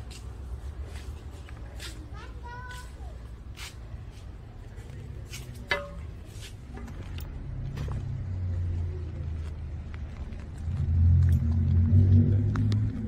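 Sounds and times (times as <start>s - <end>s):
car engine rumble: 6.0s - 13.0s.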